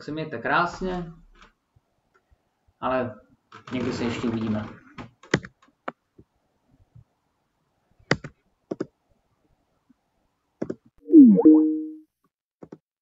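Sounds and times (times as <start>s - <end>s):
electronic tone gliding down: 11.1s - 12.0s.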